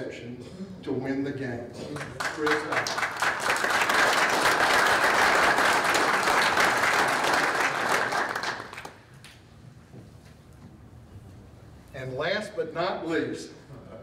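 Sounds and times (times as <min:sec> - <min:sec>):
audience applauding: 0:02.0 - 0:09.1.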